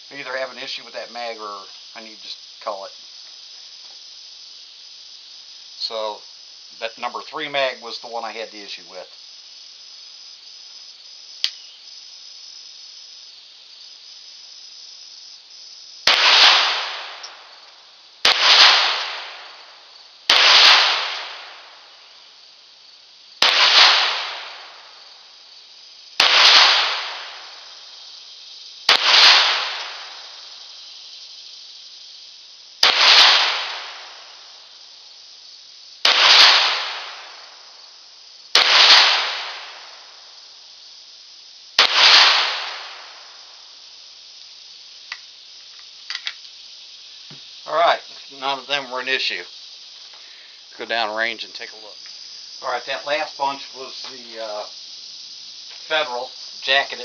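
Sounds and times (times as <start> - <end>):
steady high hiss: 0.0 - 57.0
small click: 11.4 - 11.6, 45.1 - 46.4
pistol shots: 16.1 - 17.4, 18.2 - 19.4, 20.3 - 21.6, 23.4 - 24.7, 26.2 - 27.4, 28.9 - 30.1, 32.8 - 34.0, 36.0 - 37.3, 38.6 - 39.8, 41.8 - 43.0.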